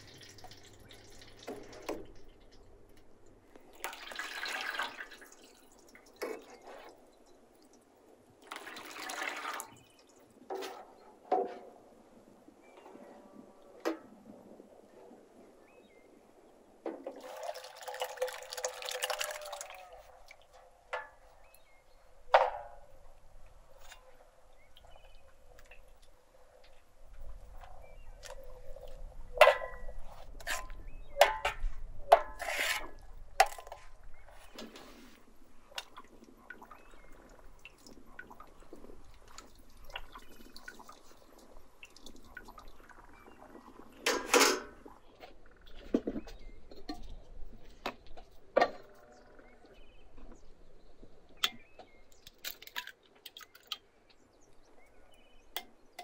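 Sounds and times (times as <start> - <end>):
thick liquid pouring into metal bowl: 0.0 - 2.7, 3.7 - 6.2, 8.4 - 9.9, 17.2 - 20.4
ladle scraping metal bowl: 29.4 - 33.9.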